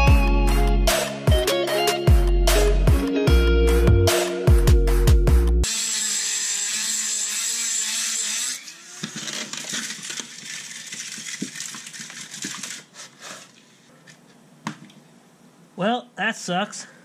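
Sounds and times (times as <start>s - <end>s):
rotary tool grinding steel: 5.6s - 13.4s.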